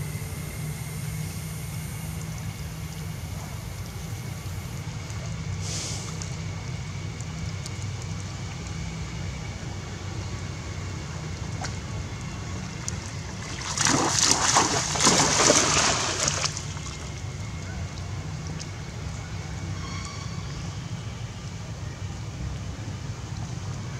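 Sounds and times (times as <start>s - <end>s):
monkeys splashing through water: 11.4s - 17.6s.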